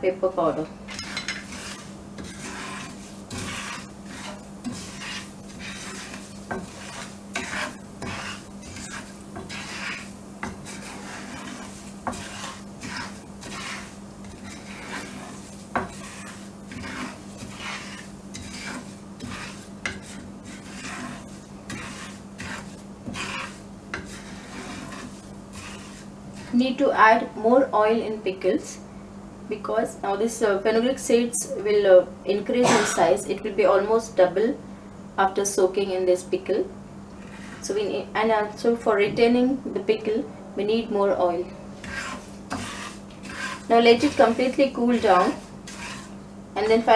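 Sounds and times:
steady low hum: 0.0 - 46.9
wooden spatula scraping pan: 0.9 - 27.4, 37.2 - 37.8, 41.8 - 46.9
spatula knocking pan: 1.0 - 26.0.

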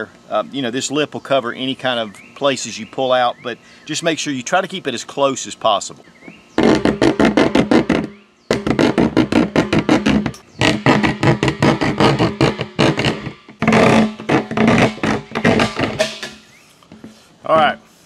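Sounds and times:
hand saw cutting plastic: 6.6 - 16.6.

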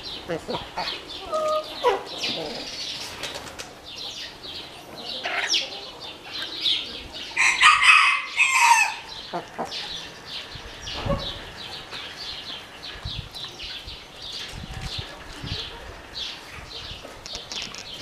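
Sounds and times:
rooster crowing: 7.4 - 9.1.

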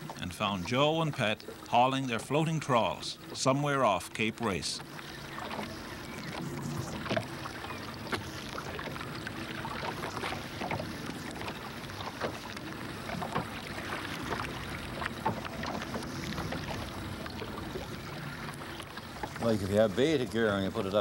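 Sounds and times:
boat engine running: 0.0 - 21.0
water washing against hull: 0.0 - 21.0
knocks and splashes: 4.8 - 19.9.

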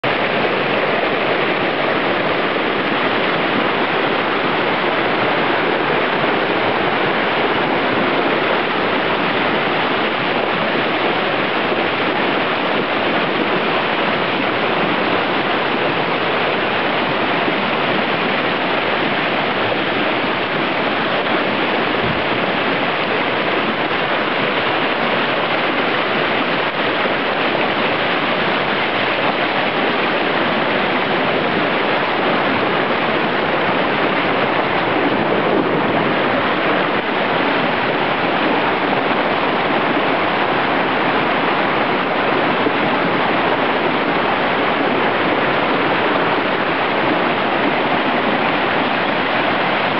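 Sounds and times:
creek rushing over rocks: 0.0 - 49.9.

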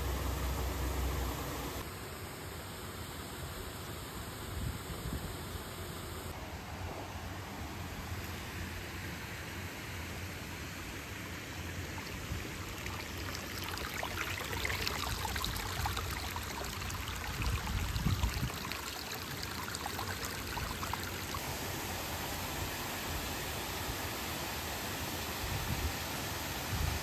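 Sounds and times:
water pouring over a low dam: 10.6 - 27.0
creek water trickling over rocks: 10.7 - 22.2.

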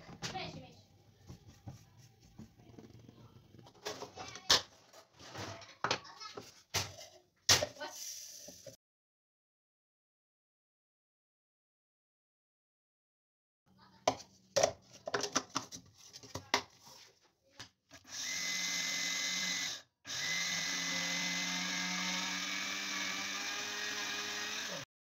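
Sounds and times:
electric blender grinding: 18.0 - 24.9.

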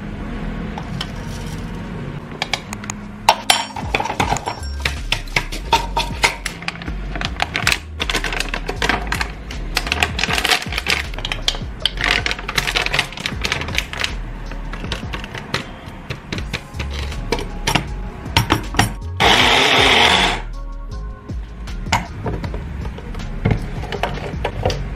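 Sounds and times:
background music with bass: 0.0 - 24.9
nuts clattering in plastic bowl: 5.2 - 14.1.

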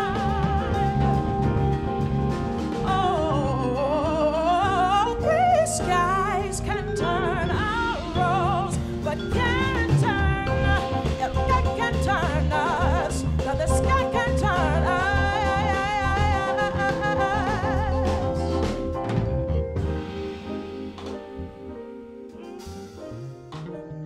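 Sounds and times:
woman singing jazz: 0.0 - 19.0
electric bass: 0.0 - 23.9
drums: 0.0 - 24.0
piano: 0.0 - 24.0
vibraphone: 0.0 - 24.0.

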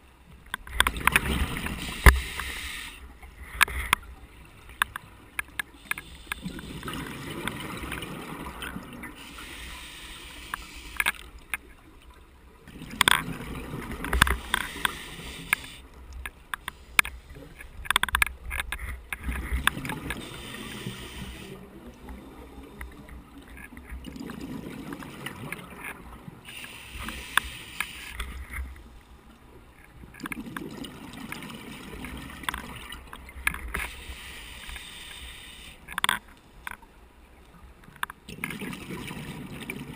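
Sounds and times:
diver breathing through regulator: 1.8 - 3.1, 9.2 - 11.1, 14.4 - 15.8, 20.2 - 21.6, 33.8 - 35.9.

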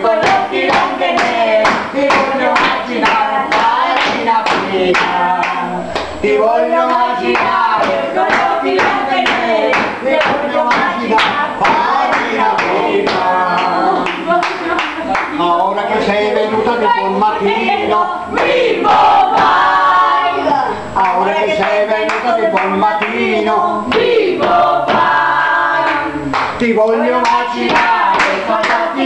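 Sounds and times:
people singing folk song: 0.0 - 29.0
hand-clapping: 0.2 - 6.1, 6.9 - 15.3, 25.8 - 29.0.

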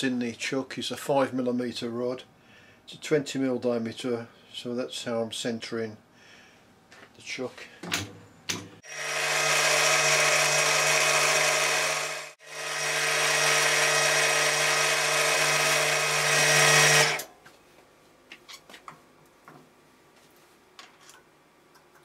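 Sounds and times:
milling machine drilling metal: 8.8 - 17.3.

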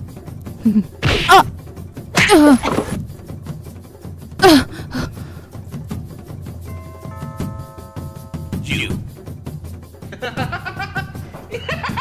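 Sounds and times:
background music: 0.0 - 12.0
person crying out and groaning: 0.6 - 1.5, 2.2 - 2.8, 4.4 - 5.2.

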